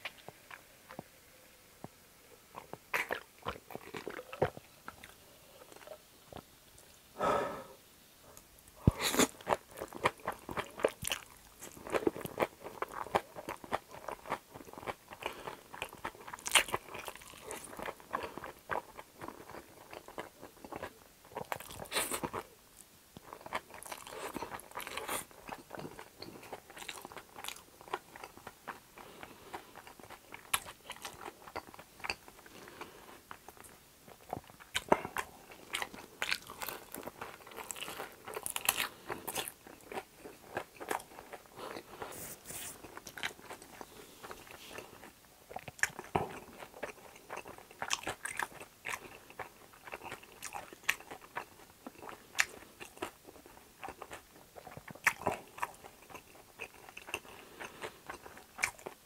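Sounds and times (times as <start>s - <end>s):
crunching fried food: 8.9s - 59.0s
wet chewing clicks: 42.8s - 59.0s.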